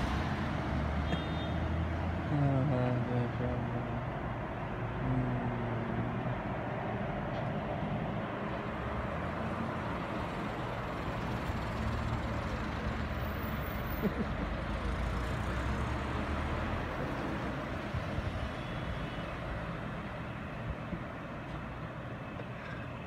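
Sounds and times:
bus approaching: 0.0s - 23.0s
cars driving past: 0.0s - 23.0s.

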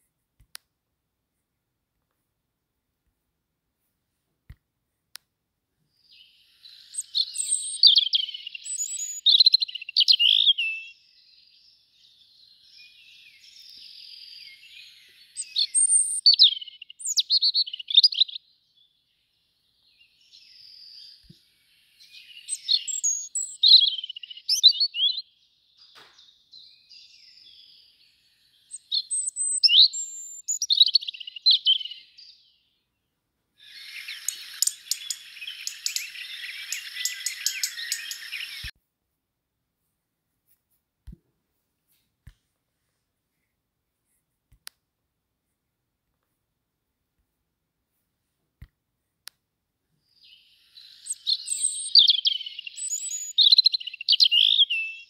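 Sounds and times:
robin singing high warbling notes: 33.6s - 38.7s
scratchy chatter of fine clicks: 33.7s - 38.4s.

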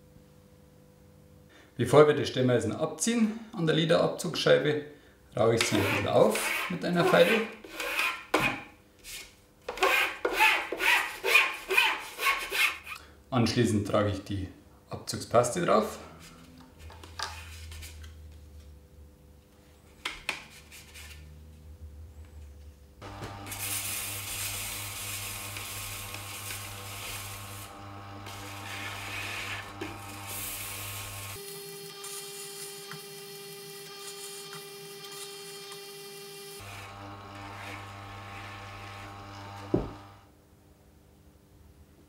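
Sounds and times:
chisel rubbing on honing wheel: 5.6s - 8.3s, 28.2s - 31.4s, 36.7s - 39.1s
sharpening machine motor hum: 23.0s - 40.3s.

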